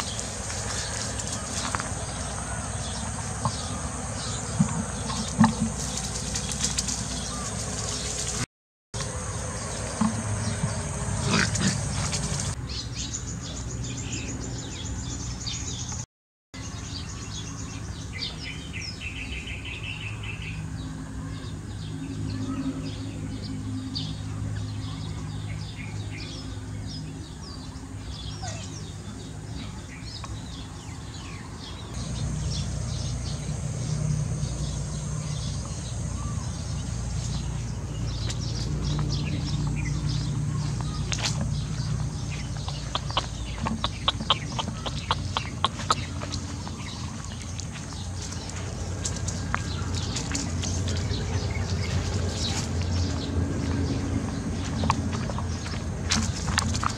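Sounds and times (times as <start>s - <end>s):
small birds chirping: 0.0s - 56.9s
steady low hum: 20.5s - 56.9s
rhythmic bird trill: 39.0s - 48.4s.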